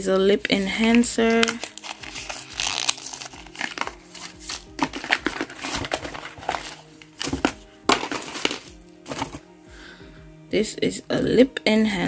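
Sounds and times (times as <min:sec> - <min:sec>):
soft background music: 0:00.0 - 0:12.0
paper and bubble wrap crinkling: 0:00.4 - 0:09.5.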